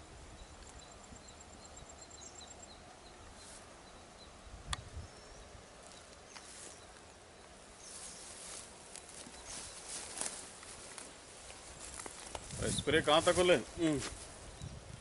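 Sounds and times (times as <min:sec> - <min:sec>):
footsteps rustling on soil: 0:03.3 - 0:03.8, 0:05.8 - 0:15.0.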